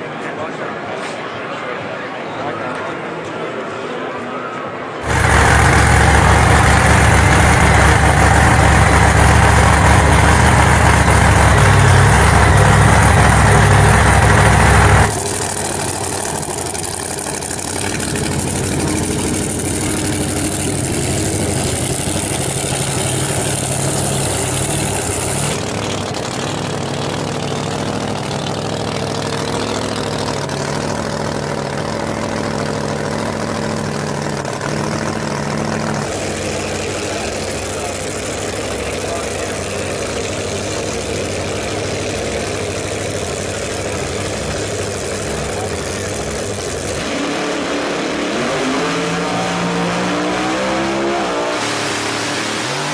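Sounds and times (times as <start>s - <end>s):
engine idling: 5.0s - 47.0s
loud engine running: 5.0s - 52.9s.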